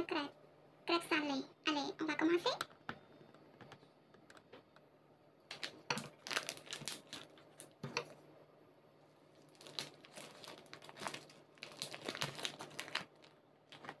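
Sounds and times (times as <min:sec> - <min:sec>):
plastic wrapping crinkling and tearing: 0:05.5 - 0:07.8, 0:09.4 - 0:14.0.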